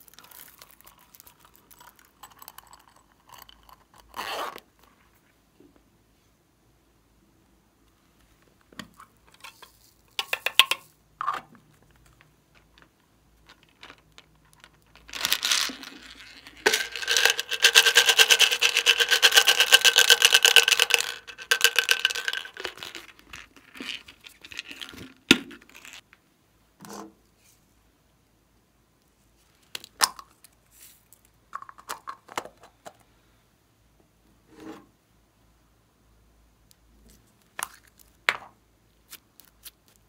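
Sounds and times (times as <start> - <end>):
small beads rattling: 0.0 - 4.3, 11.7 - 26.0.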